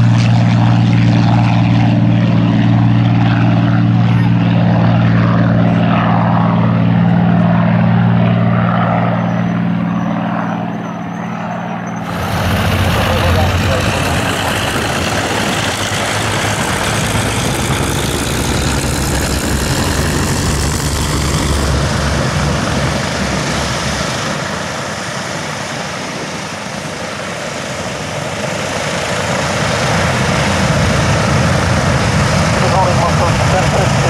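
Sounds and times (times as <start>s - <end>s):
aircraft propeller engines droning: 0.0s - 34.0s.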